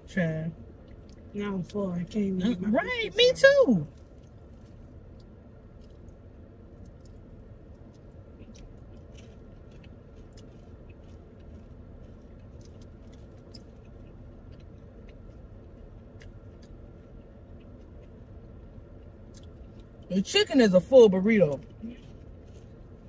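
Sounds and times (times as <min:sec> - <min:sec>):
steady low hum: 0:00.0 - 0:23.0
person chewing food: 0:00.7 - 0:01.3, 0:03.9 - 0:20.1, 0:21.6 - 0:23.0.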